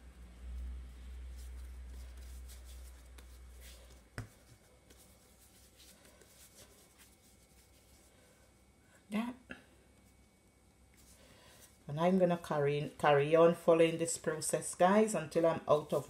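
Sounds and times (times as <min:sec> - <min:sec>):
hands rubbing dough: 0:00.0 - 0:08.7, 0:09.9 - 0:13.1.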